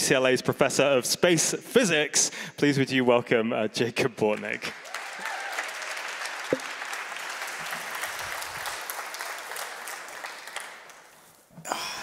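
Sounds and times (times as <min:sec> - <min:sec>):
crowd applauding: 0:04.6 - 0:11.1.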